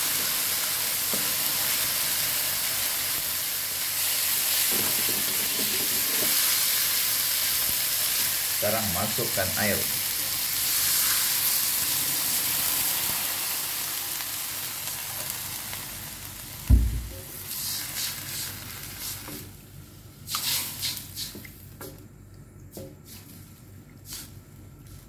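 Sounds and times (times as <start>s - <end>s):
water sizzling in hot wok: 0.0s - 19.6s
low thump: 16.7s - 17.3s.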